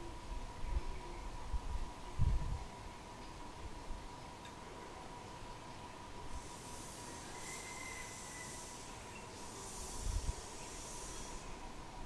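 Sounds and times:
high hiss: 0:06.1 - 0:12.0.

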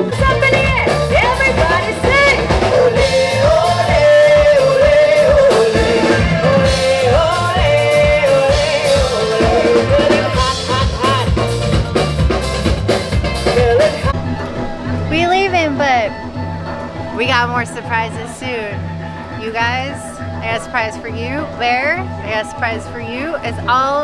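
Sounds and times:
person singing: 0:00.0 - 0:12.1, 0:13.3 - 0:14.2
drum kit beat: 0:00.0 - 0:16.1
guitar: 0:00.0 - 0:24.0
keyboard: 0:00.0 - 0:24.0.

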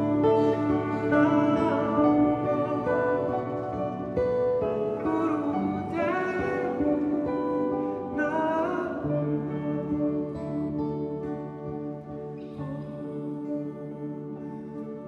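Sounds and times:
man singing: 0:00.0 - 0:10.4
acoustic guitars playing: 0:00.0 - 0:15.0.

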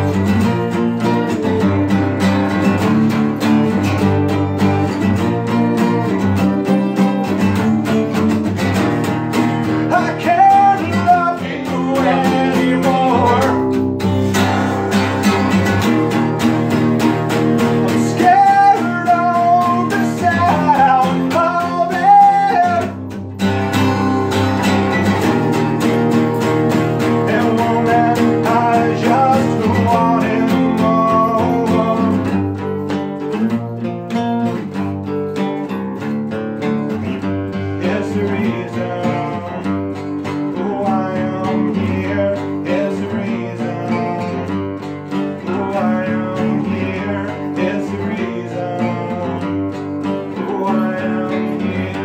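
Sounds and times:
acoustic bass guitar: 0:00.0 - 0:52.0
acoustic guitar strumming: 0:00.0 - 0:52.0
man singing a rock song: 0:09.6 - 0:14.0, 0:17.5 - 0:23.2, 0:27.0 - 0:32.5, 0:37.7 - 0:52.0.

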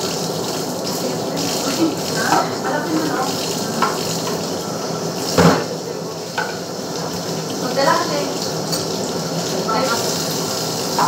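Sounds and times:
utensils clinking on plates: 0:00.8 - 0:04.6, 0:05.2 - 0:06.8.

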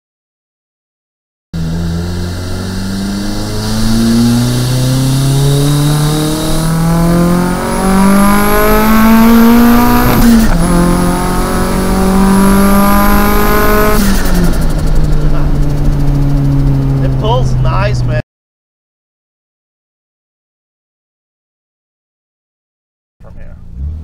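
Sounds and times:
car engine accelerating: 0:01.6 - 0:18.2, 0:23.2 - 0:24.0.

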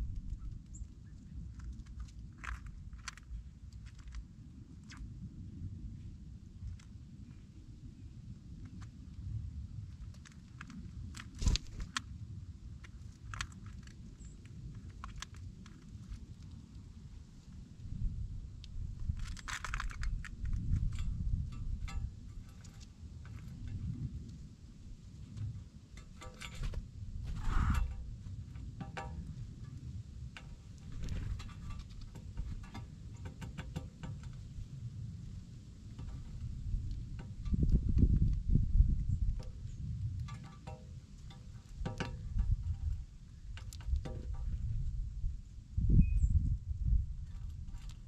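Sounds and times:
low steady rumble: 0:00.0 - 0:48.0
birds pecking on metal pan: 0:19.1 - 0:24.5, 0:25.1 - 0:38.3, 0:39.3 - 0:44.6.

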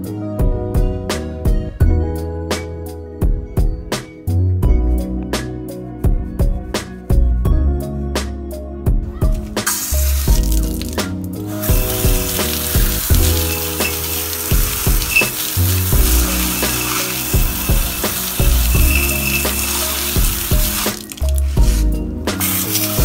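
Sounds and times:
background music with steady beat: 0:00.0 - 0:23.0
hose spraying water on wheel: 0:09.6 - 0:23.0.

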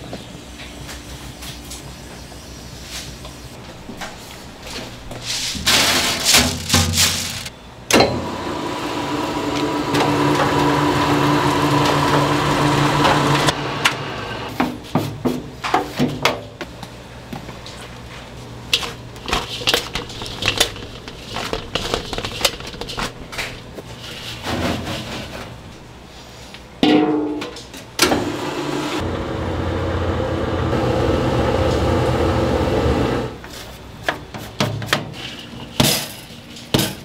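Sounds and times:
roller mill grinding hum: 0:08.1 - 0:14.6, 0:28.0 - 0:33.5.

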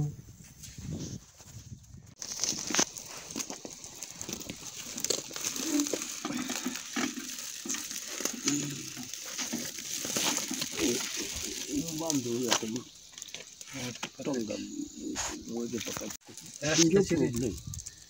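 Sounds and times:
plastic sack rustling: 0:02.2 - 0:14.3.

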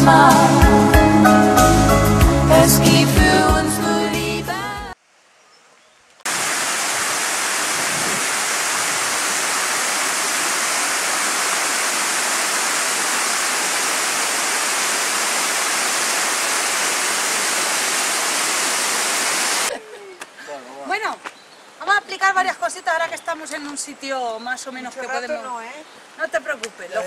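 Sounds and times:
river rushing over rocks: 0:06.3 - 0:19.7.

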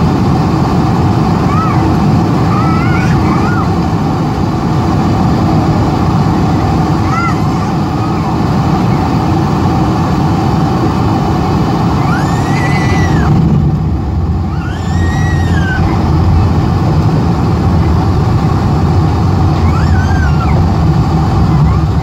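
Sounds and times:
aircraft cabin rumble on runway: 0:00.0 - 0:22.0
high rising and falling tones: 0:11.0 - 0:22.0.

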